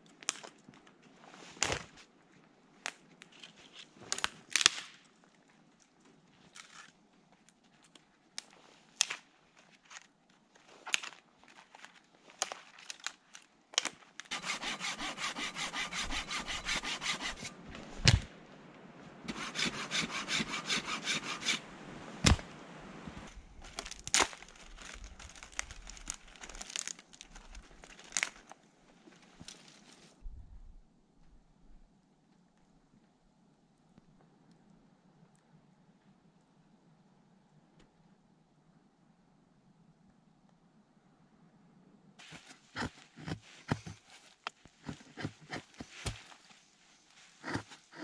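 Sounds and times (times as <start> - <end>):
wood cracking: 10.9 - 14.7, 22.2 - 22.5, 23.6 - 28.6
hand saw cutting wood: 14.3 - 17.5, 19.3 - 21.6, 42.2 - 44.0, 44.8 - 46.2, 47.4 - 48.0.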